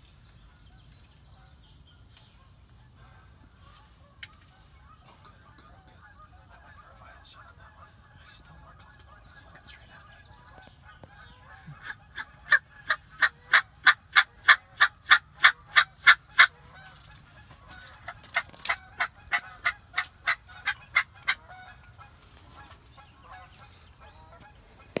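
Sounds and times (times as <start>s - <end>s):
turkey yelping: 11.0s - 16.9s, 17.7s - 21.9s.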